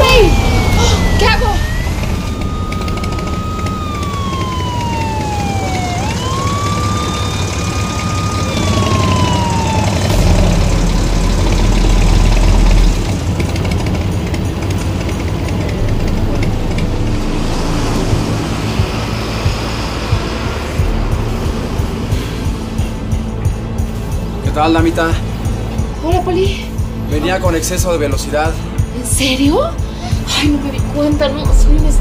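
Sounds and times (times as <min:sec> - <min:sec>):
motorcycle siren wailing: 0:00.0 - 0:23.4
deep engine rumble: 0:00.0 - 0:32.0
traffic noise: 0:00.0 - 0:32.0.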